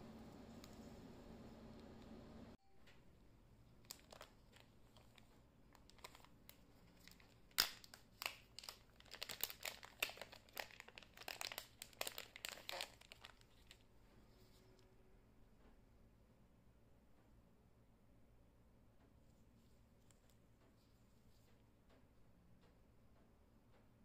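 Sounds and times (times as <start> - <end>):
handling noise crinkles and clicks: 3.6 - 13.9.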